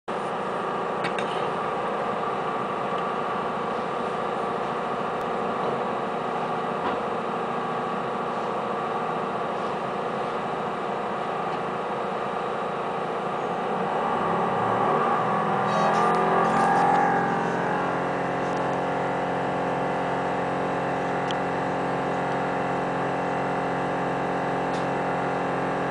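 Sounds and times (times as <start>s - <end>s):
diesel engine idling: 0.1s - 25.9s.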